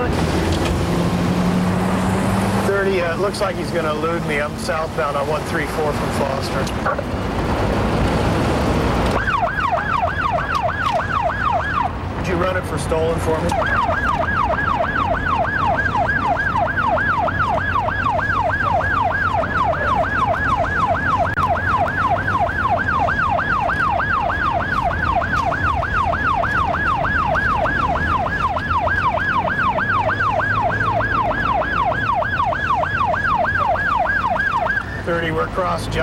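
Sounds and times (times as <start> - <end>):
car engine and road noise: 0.0 - 36.0
police siren yelping: 9.1 - 36.0.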